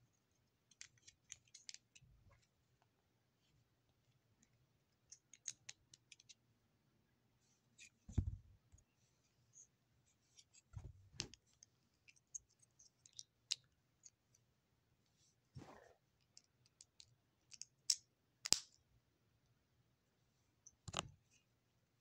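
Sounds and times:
small handling clicks and scratches: 0.1s - 6.5s, 9.5s - 14.5s, 16.2s - 18.8s
dull thumps: 8.1s - 8.5s.

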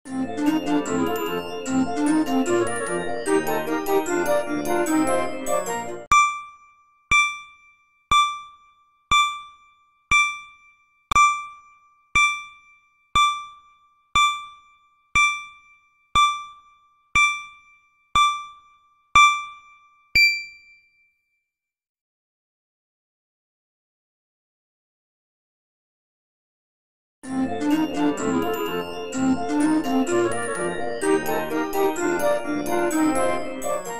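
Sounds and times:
keyboard music jingle: 0.1s - 6.1s, 27.3s - 33.9s
countdown timer ding: 0.4s - 20.8s, 27.6s - 33.9s.

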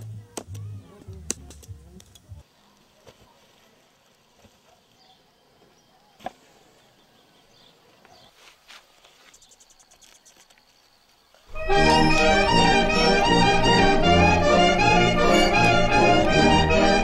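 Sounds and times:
faint farmyard ambience: 0.0s - 12.8s.

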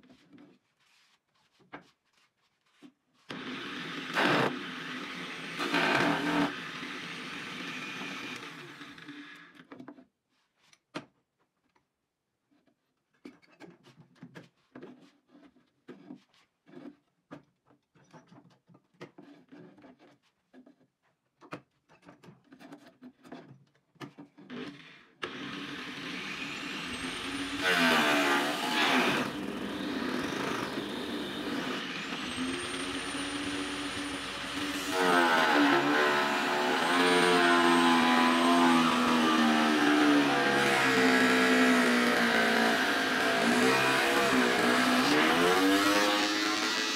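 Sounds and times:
angle grinder whining: 3.3s - 9.5s, 25.2s - 46.9s.

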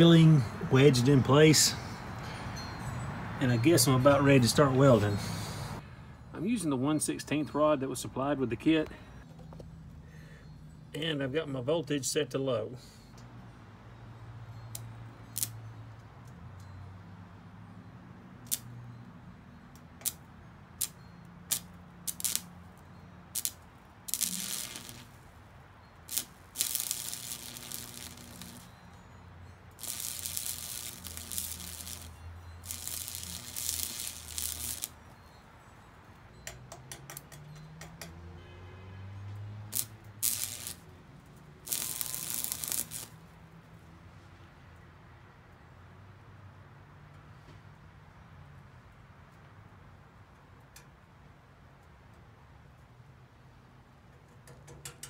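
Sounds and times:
welding arc crackling: 20.8s - 22.5s, 23.4s - 25.3s, 26.0s - 28.7s, 29.8s - 35.0s, 39.7s - 40.9s, 41.6s - 43.2s
welding rod ticking: 20.8s - 22.5s, 23.4s - 25.2s, 26.1s - 28.7s, 29.8s - 34.9s, 39.7s - 40.8s, 41.7s - 43.1s.

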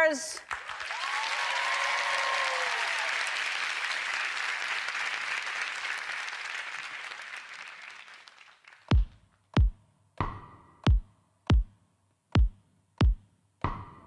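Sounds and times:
audience applauding and cheering: 0.4s - 9.0s
whoops: 0.8s - 3.5s.

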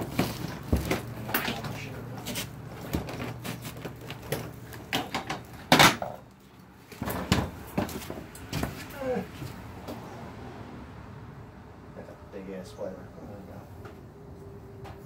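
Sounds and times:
tools knocking and clattering: 2.8s - 6.2s, 6.9s - 8.8s.

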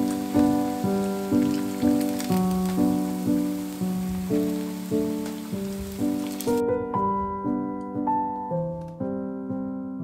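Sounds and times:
steady hiss: 0.0s - 6.6s
slow piano melody: 0.0s - 10.0s.

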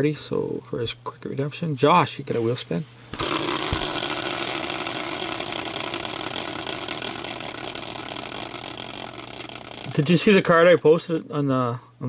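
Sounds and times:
spinning wheel whirring: 3.1s - 10.7s.

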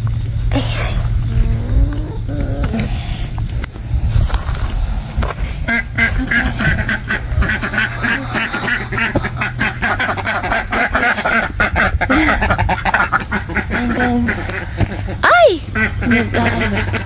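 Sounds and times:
ducks quacking: 5.4s - 17.0s.

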